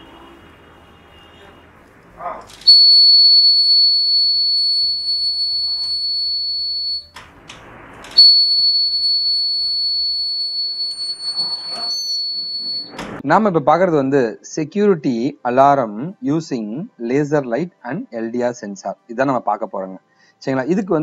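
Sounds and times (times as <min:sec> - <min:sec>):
alarm buzzer tone: 0:02.7 - 0:07.2, 0:07.8 - 0:13.2.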